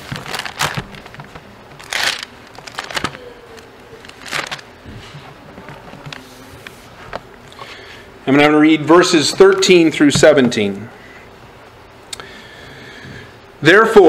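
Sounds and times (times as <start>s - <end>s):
book pages rustling: 0.0s - 7.2s.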